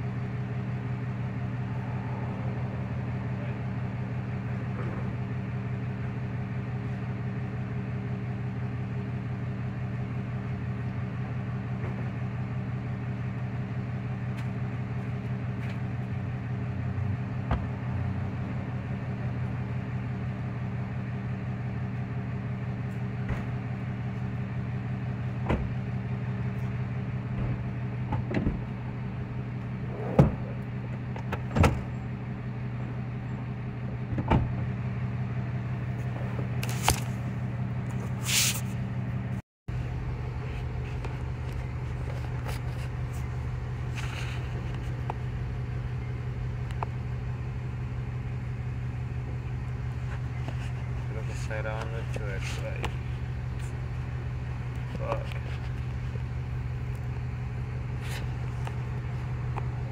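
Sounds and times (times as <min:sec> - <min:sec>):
low mechanical hum: 0:00.0 - 0:59.9
knocks and clunks in car cabin: 0:25.4 - 0:25.8, 0:27.3 - 0:28.8, 0:29.9 - 0:31.9, 0:34.1 - 0:34.6.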